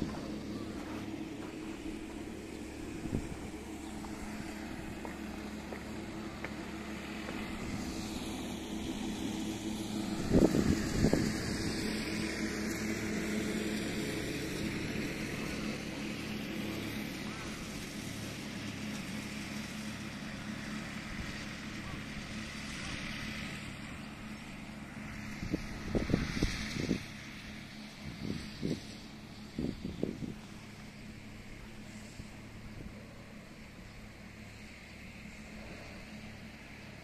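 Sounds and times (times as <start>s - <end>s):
distant lawn mower engine: 0.0s - 37.0s.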